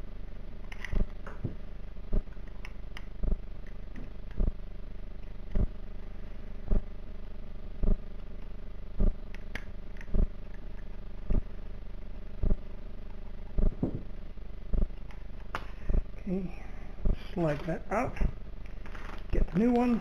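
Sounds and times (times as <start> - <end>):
steady machine hum: 0.0 - 20.0
dull low thumps: 3.2 - 3.4, 12.4 - 12.6, 13.6 - 14.1, 14.7 - 15.0.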